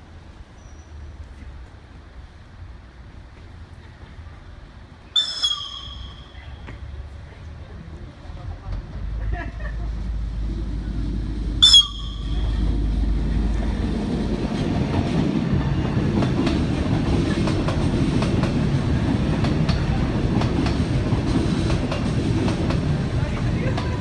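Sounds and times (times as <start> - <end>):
train rumbling by: 0.0 - 24.0
high train horn toot: 11.6 - 12.7
wheels clicking over rail joints: 11.8 - 24.0.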